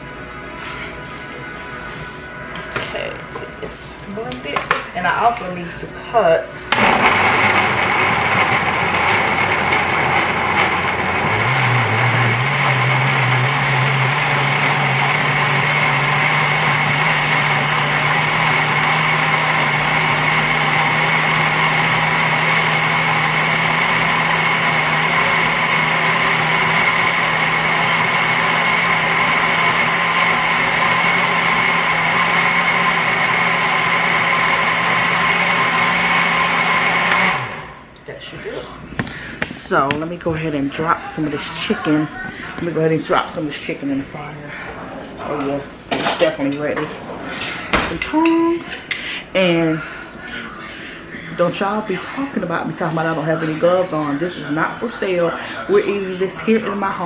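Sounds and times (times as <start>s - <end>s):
blender motor running: 6.7s - 37.9s.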